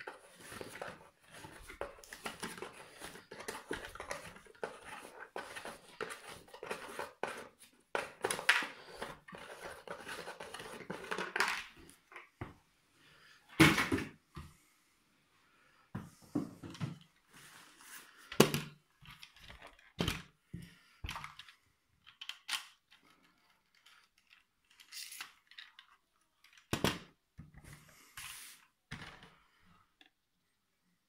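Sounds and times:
plastic toy clicks and knocks: 0:21.1 - 0:23.0.

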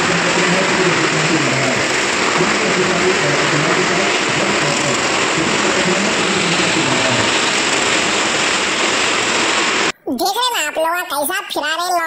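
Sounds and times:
motorcycle engines revving: 0:00.0 - 0:09.9.

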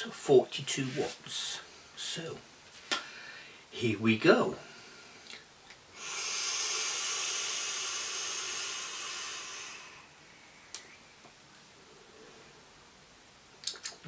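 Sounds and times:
vaporiser coil hissing: 0:05.9 - 0:10.9.

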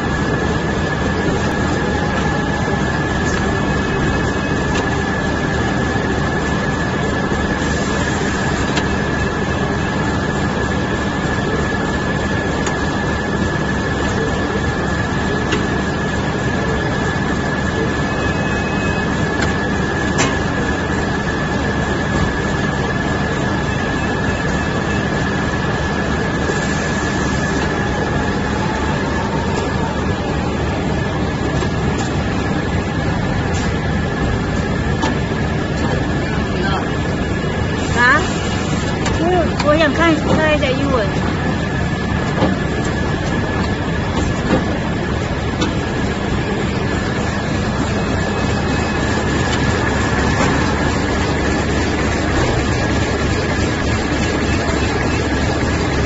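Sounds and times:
high-pitched machine whine: 0:00.0 - 0:56.0
machinery din: 0:25.9 - 0:56.0.

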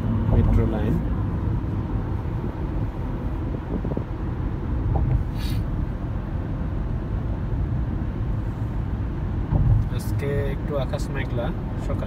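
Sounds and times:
car road and engine noise: 0:00.0 - 0:12.0
brief hiss: 0:05.3 - 0:05.7.

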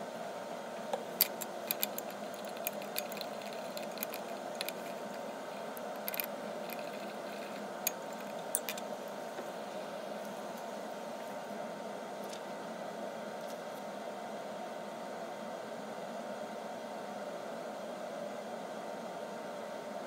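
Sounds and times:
steady background hum: 0:00.0 - 0:20.0
glass rod clicking against beaker: 0:05.8 - 0:08.8.

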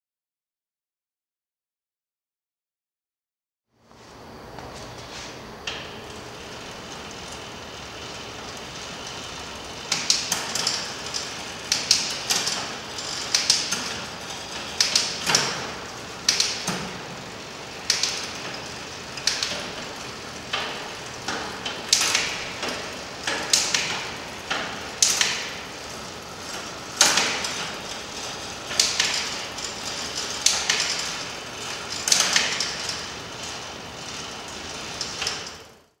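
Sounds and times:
bicycle chain running over cassette: 0:06.4 - 0:16.2.

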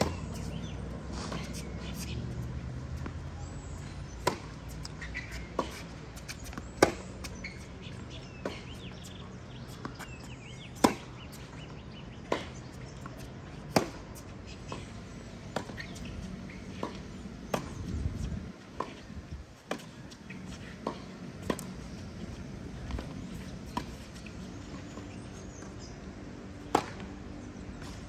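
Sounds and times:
racket hitting tennis ball: 0:00.0 - 0:03.2, 0:03.8 - 0:07.7, 0:08.5 - 0:11.4, 0:12.3 - 0:14.9, 0:15.5 - 0:24.8, 0:26.6 - 0:27.2.

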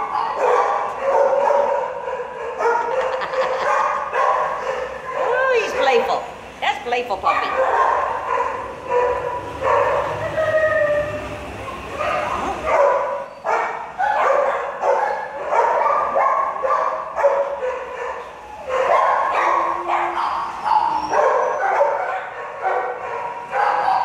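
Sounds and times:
dogs barking and yipping: 0:00.0 - 0:06.0, 0:07.2 - 0:24.0.

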